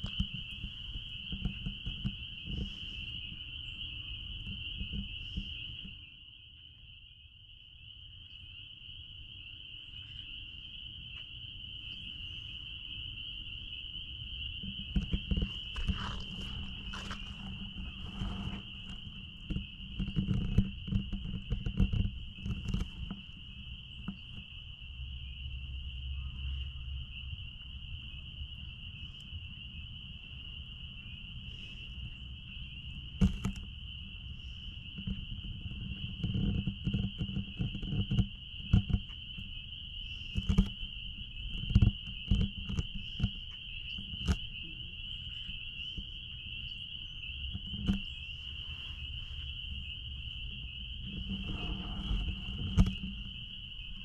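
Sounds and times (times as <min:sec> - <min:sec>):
knocks and rustles: 0:00.0 - 0:03.4, 0:14.6 - 0:24.5, 0:33.2 - 0:33.7, 0:47.5 - 0:54.0
frogs peeping in chorus: 0:00.0 - 0:54.0.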